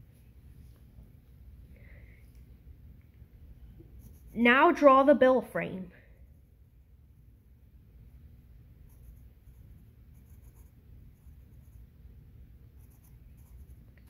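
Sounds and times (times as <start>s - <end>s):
low steady hum: 0.0s - 14.0s
pencil scratching on paper: 4.0s - 4.5s, 8.9s - 11.8s, 12.8s - 13.8s.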